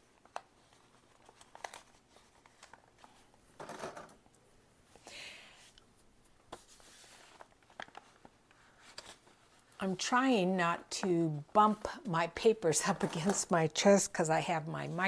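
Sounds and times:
paper sheets rustling: 0.0s - 3.3s, 6.2s - 9.8s.

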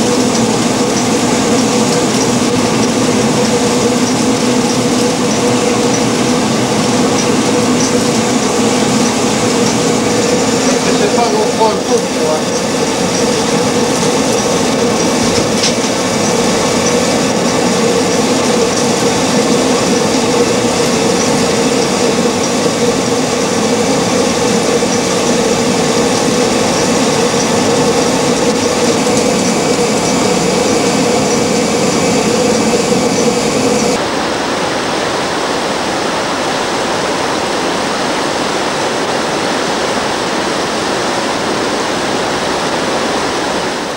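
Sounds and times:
water mill grinding rumble: 0.0s - 34.1s
river water pouring over a weir: 0.0s - 43.9s.

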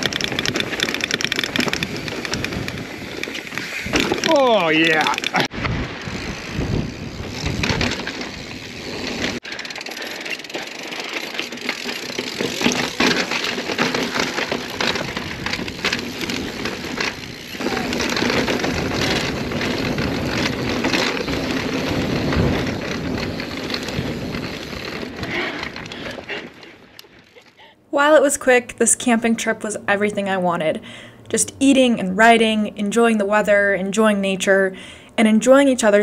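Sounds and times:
bike knocks and rattles: 0.0s - 27.3s
bike tyres rushing over rocks: 0.0s - 27.4s.

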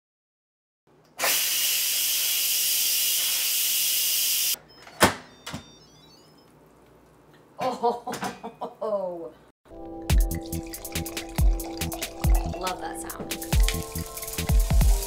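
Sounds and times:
pressure cooker steam hiss: 1.2s - 4.6s.

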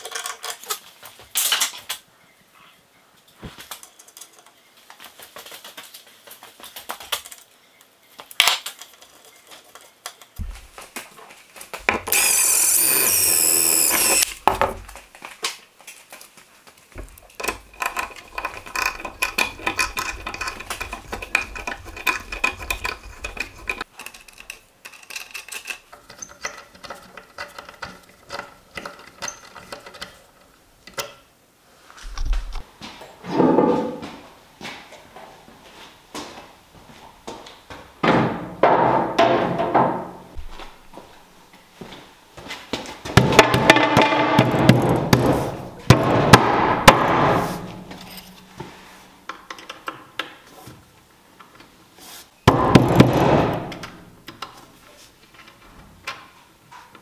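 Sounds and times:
metal parts and tools clattering: 0.0s - 1.8s, 17.0s - 30.5s, 47.7s - 48.6s
power tool running loudly: 12.1s - 14.3s.

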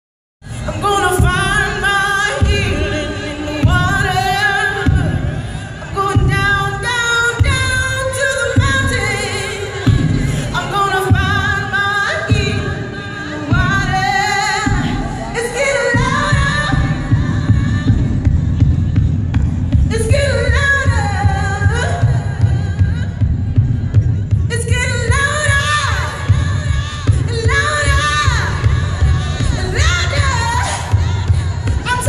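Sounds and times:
woman singing with vibrato: 0.4s - 32.0s.

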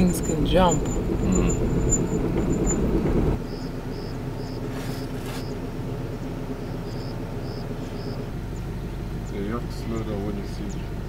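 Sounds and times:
car rumbling on dirt road: 0.0s - 11.0s
steady low hum: 0.0s - 11.0s.

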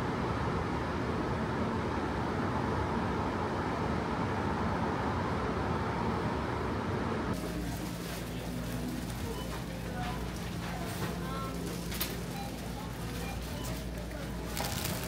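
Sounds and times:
street traffic hum: 0.1s - 15.0s.

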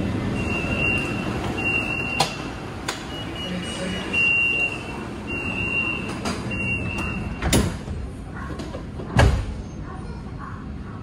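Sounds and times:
train carriage hum: 0.0s - 11.0s
high steady warning beep: 0.4s - 2.4s, 3.1s - 7.5s.

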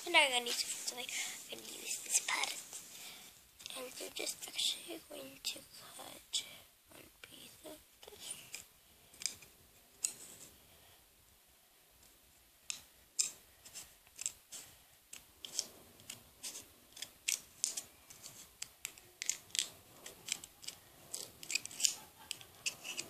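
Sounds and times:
scissors snipping plastic straw: 14.2s - 14.4s, 18.6s - 23.0s.

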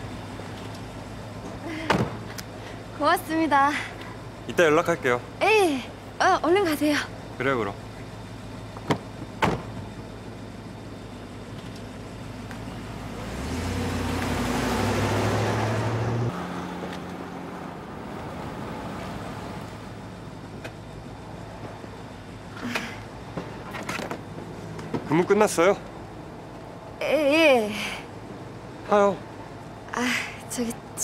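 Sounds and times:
steady low hum: 0.0s - 14.3s
car pulling away: 7.4s - 22.0s.

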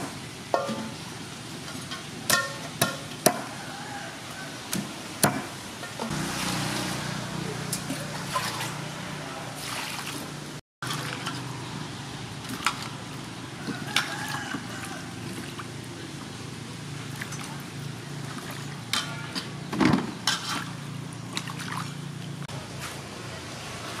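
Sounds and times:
hands rinsing greens in water: 6.2s - 11.5s.

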